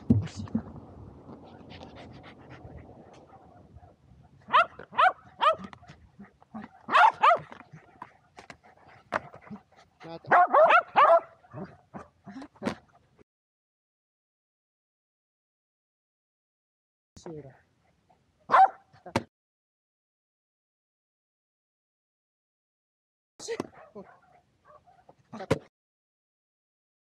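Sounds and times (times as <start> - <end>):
dogs barking in high yips: 4.5 - 5.9, 6.6 - 7.6, 10.3 - 12.1, 18.5 - 18.9.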